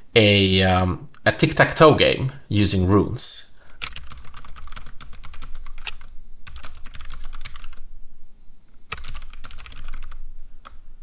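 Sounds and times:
computer keyboard typing: 3.7s - 7.8s, 8.9s - 10.8s.

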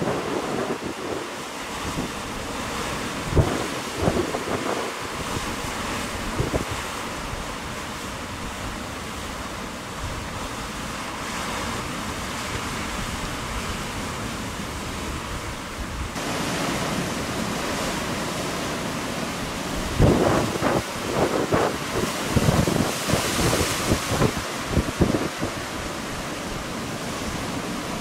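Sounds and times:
wind rumbling on microphone: 0.0s - 8.8s, 19.6s - 28.0s
heavy surf breaking on rocks: 0.0s - 28.0s.

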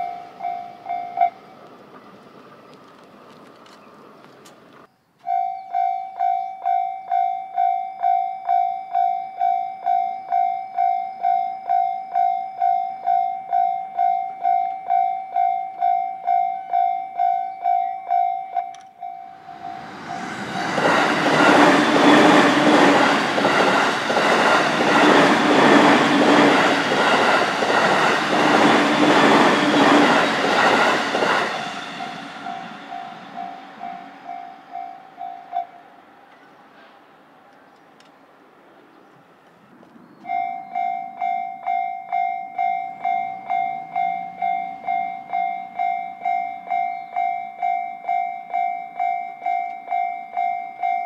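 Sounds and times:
level crossing warning bell: 0.0s - 1.5s, 5.2s - 27.6s, 28.2s - 35.9s, 40.2s - 51.0s
train wheels clacking over rails: 19.4s - 34.8s.

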